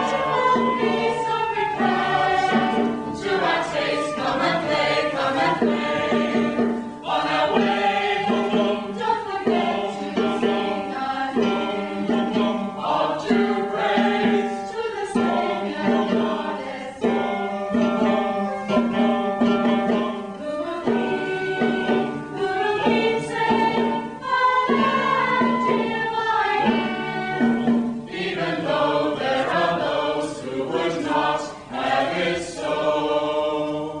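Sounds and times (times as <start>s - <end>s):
choir singing: 0.0s - 34.0s.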